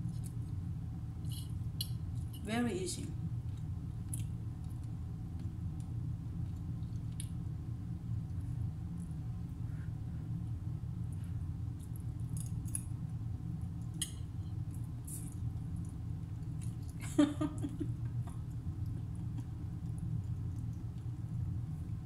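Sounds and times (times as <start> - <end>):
low steady hum: 0.0 - 22.0
person chuckling: 17.0 - 18.2, 19.0 - 19.6.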